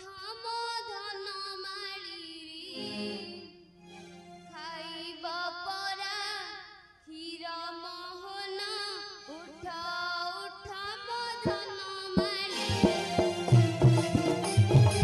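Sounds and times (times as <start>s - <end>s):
drum strokes: 11.5s - 15.0s.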